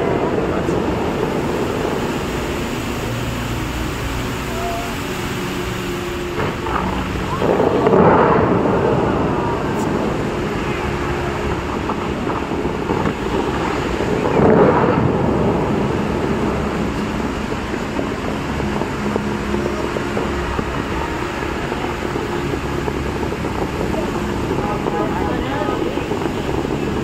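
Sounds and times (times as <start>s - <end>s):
fountain water rushing and splashing: 0.0s - 27.0s.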